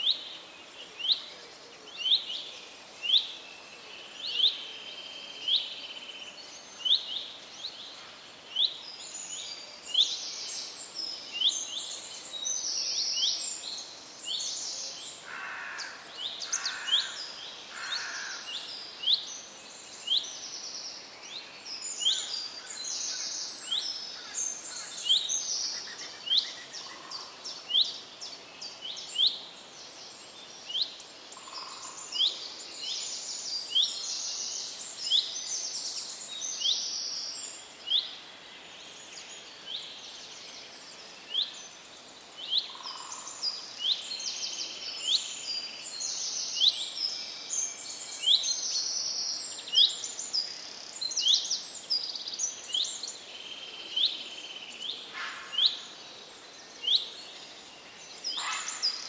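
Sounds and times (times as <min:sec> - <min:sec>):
birds chirping in chorus: 0:00.0 - 0:59.0.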